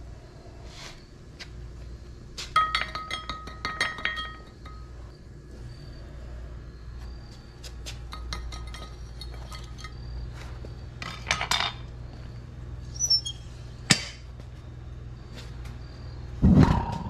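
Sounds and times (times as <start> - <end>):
steady low hum: 0.0 - 17.0
metal clinks and taps: 2.6 - 4.8, 8.1 - 10.0.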